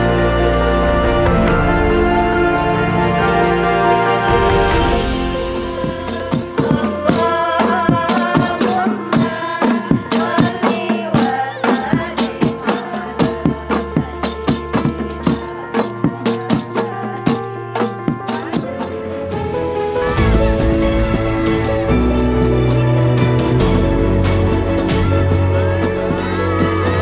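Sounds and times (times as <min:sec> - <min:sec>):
voices singing or chanting: 0:00.0 - 0:27.0
frame drums with jingles: 0:05.2 - 0:19.1, 0:20.2 - 0:27.0.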